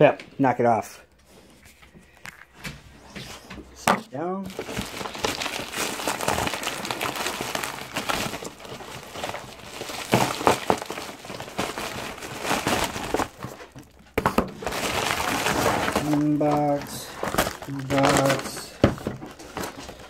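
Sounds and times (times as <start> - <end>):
packaging rustling and crinkling: 4.4 - 20.0.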